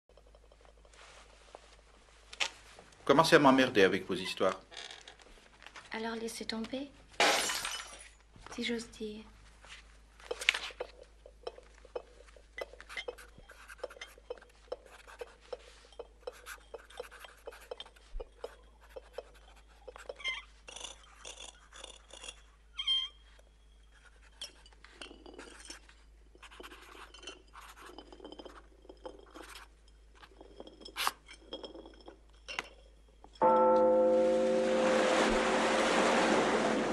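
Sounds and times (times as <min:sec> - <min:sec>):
broken glass clinking: 0:07.2 - 0:08.2.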